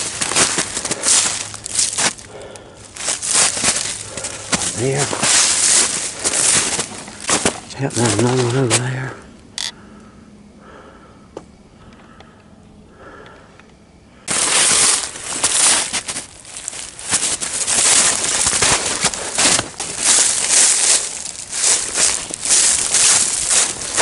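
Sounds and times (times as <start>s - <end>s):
boots crunching through snow and leaves: 0.0s - 9.1s, 14.3s - 24.0s.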